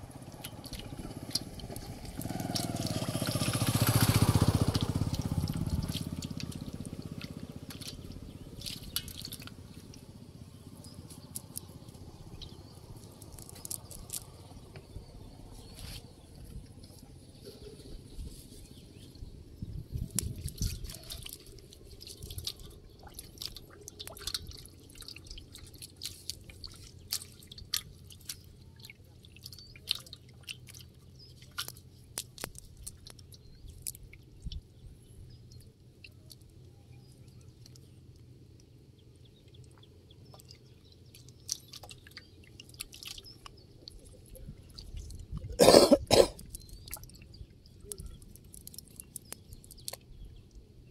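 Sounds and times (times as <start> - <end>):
water dripping and splashing: 0.0 - 14.9, 19.9 - 50.9
fishing net rustling and clicking: 0.2 - 12.1, 12.8 - 14.6, 20.0 - 34.7, 46.4 - 50.6.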